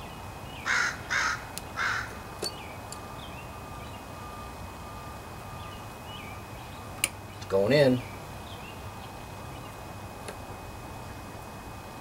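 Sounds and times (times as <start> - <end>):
crow cawing: 0.6 - 2.2.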